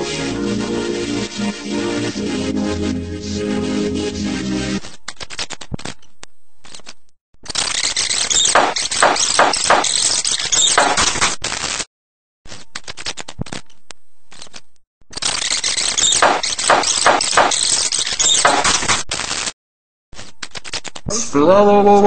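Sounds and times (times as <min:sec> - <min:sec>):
crackling clicks: 0:12.5 - 0:19.5.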